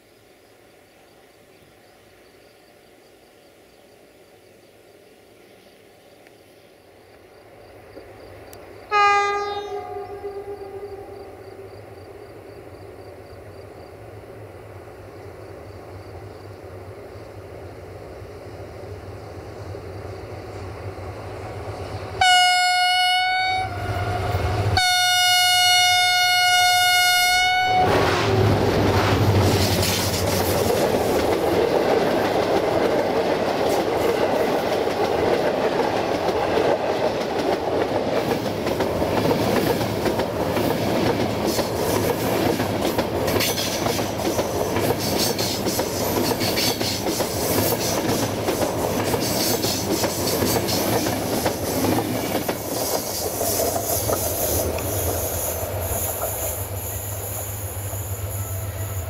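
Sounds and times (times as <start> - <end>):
rumble of passing train coaches: 0.0 - 59.0
locomotive air horn blasts: 8.9 - 11.2, 22.2 - 28.1
train wheels clattering over rail joints: 28.4 - 56.4.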